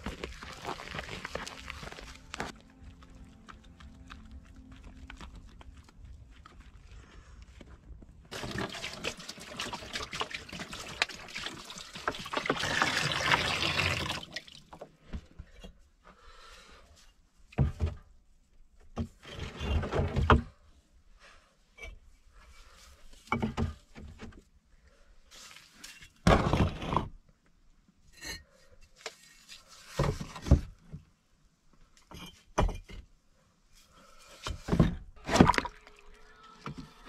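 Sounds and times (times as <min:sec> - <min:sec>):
bricks knocking and splashing: 0:08.3 - 0:14.8, 0:34.5 - 0:36.0
water pouring into plastic tub: 0:08.3 - 0:14.8, 0:35.2 - 0:37.0.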